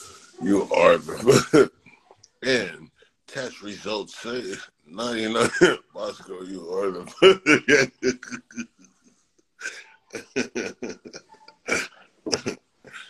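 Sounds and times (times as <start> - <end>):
man laughing: 1.1 - 1.7, 5.2 - 8.8, 9.6 - 13.0.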